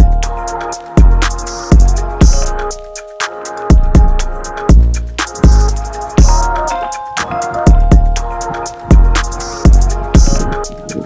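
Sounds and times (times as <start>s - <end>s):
deep kick drum: 0.0s - 0.3s, 1.0s - 2.5s, 3.7s - 6.6s, 7.7s - 10.9s
sustained synth notes: 0.0s - 11.0s
ticking percussion: 0.0s - 11.0s.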